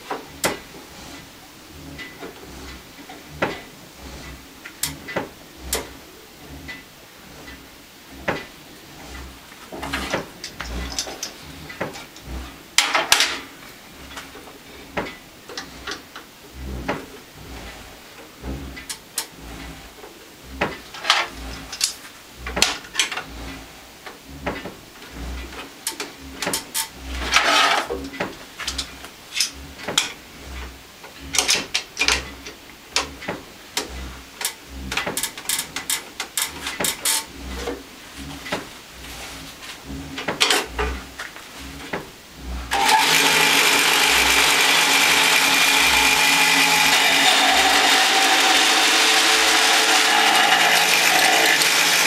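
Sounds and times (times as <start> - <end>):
electric motor running: 40.7 - 52.0.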